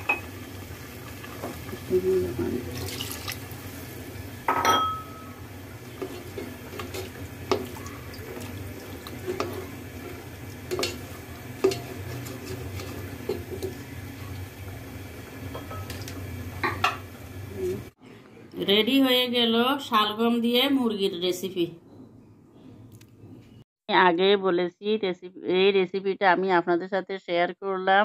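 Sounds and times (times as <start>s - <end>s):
spatula stirring in metal pot: 5.8s - 13.8s
spatula clanking against pot: 10.7s - 13.8s.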